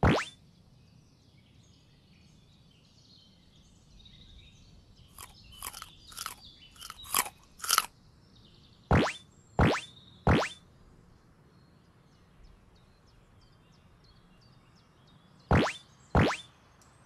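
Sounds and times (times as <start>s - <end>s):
crisp carrot bites: 5.2s - 7.9s.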